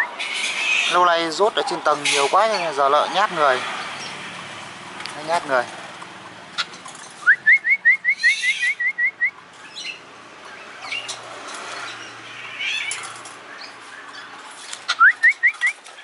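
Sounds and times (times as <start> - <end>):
bird calling short rising notes: 7.2 - 10.0.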